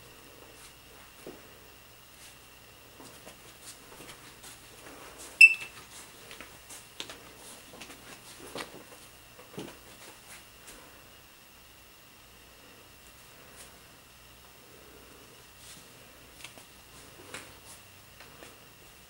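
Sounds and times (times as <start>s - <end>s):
faint knocks and footfalls: 3.0s - 10.8s
high-pitched electronic beep: 5.4s - 5.7s.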